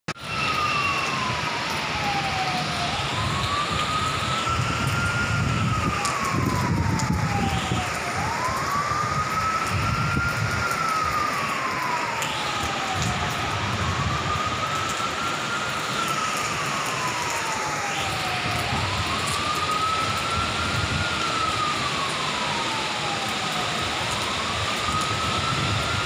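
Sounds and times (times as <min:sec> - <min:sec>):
siren wailing: 0:00.1 - 0:26.0.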